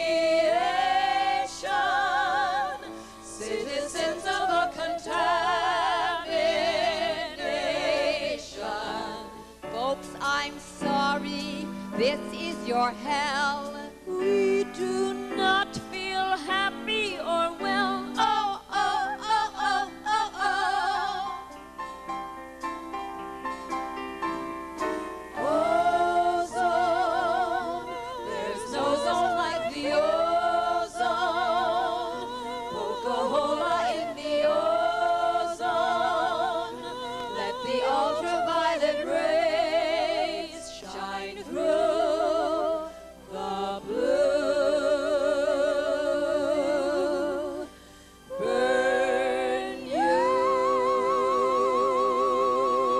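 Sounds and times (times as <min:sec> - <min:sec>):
women singing with vibrato: 0:00.0 - 0:21.6, 0:25.3 - 0:52.9.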